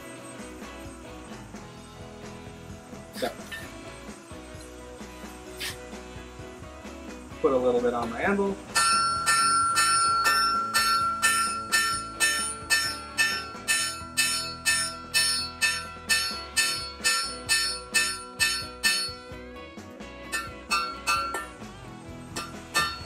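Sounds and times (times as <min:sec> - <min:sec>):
anvil ringing: 0:08.7 - 0:19.3, 0:20.3 - 0:21.6, 0:22.3 - 0:23.0
hammer striking steel on anvil: 0:08.7 - 0:19.4, 0:20.3 - 0:21.6, 0:22.3 - 0:23.0.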